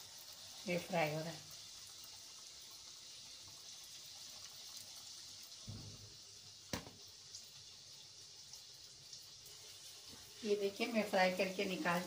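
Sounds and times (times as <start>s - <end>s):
food deep-frying in oil: 0.0s - 12.0s
dull thump: 5.7s - 7.0s.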